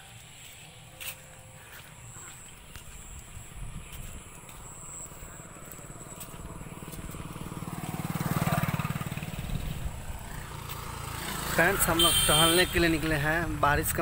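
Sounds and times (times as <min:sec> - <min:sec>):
motorcycle passing by: 0:04.7 - 0:13.7.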